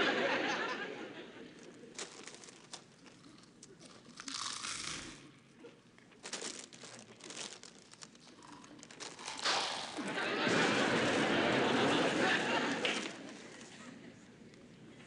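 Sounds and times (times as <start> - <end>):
chip bag crinkling: 1.6 - 5.2, 6.0 - 10.1.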